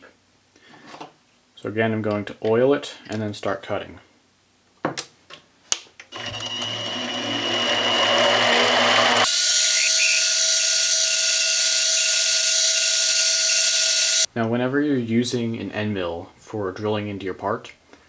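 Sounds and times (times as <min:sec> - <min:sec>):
metal cutting noise: 0:06.1 - 0:14.3
lathe motor hum and whine: 0:06.2 - 0:14.3.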